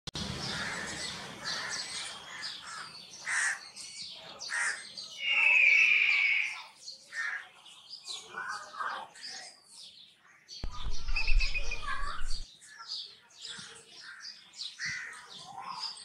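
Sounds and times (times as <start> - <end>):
long whistling bird call: 5.1 - 6.8, 11.0 - 12.4
kites calling: 5.2 - 6.8, 10.6 - 12.4.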